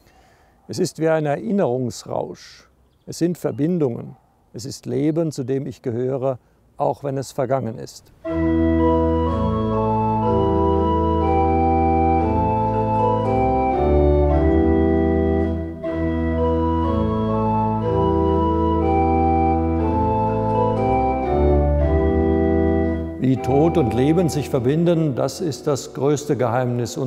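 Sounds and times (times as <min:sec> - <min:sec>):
church organ playing chords: 0:08.2 - 0:27.0
person speaking: 0:23.2 - 0:27.0.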